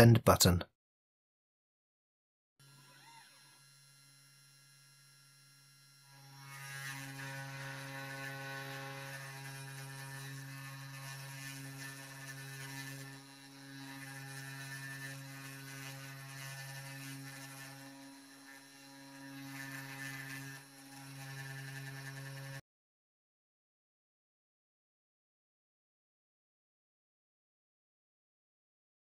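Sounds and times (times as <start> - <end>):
cnc spindle motor humming: 2.6 - 22.6.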